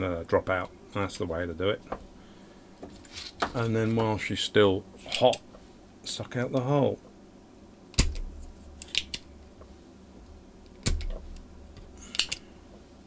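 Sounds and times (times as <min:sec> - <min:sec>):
solder sucker snap and thud: 0:07.9 - 0:08.3, 0:10.8 - 0:11.5.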